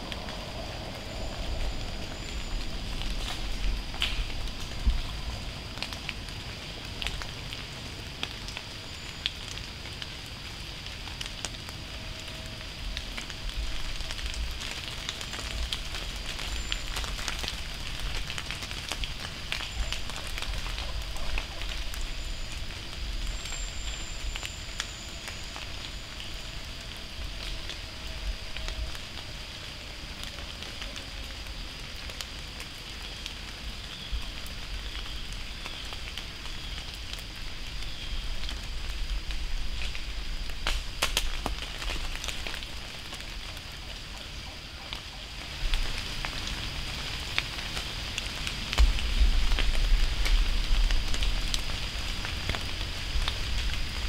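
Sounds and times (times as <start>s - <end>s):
acorns dropping on leaves: 2.4s - 7.6s, 34.7s - 43.6s.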